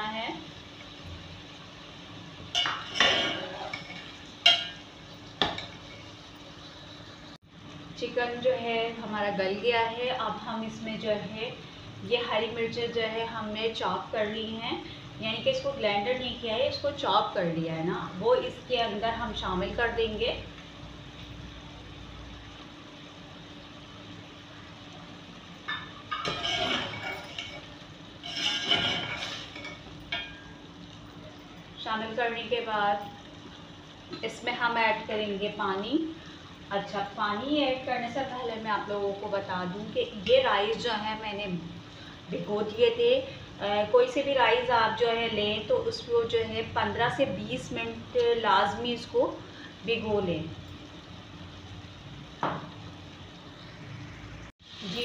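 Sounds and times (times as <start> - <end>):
metal spoon clinking against pot: 2.6 - 4.8, 25.7 - 27.7.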